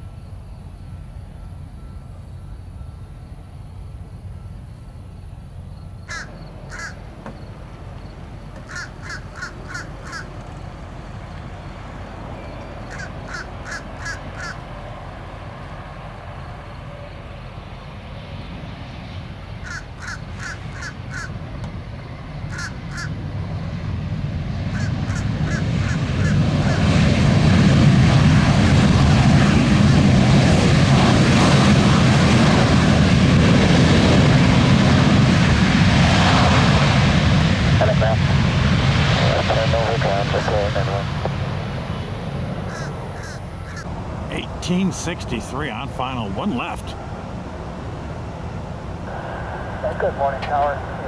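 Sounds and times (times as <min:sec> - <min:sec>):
jet engine: 0:00.0 - 0:51.0
steady low rumble: 0:00.0 - 0:51.0
crow cawing: 0:06.0 - 0:07.1, 0:08.6 - 0:10.4, 0:12.8 - 0:14.6, 0:19.6 - 0:21.4, 0:22.5 - 0:23.2, 0:24.7 - 0:26.8, 0:42.7 - 0:43.9.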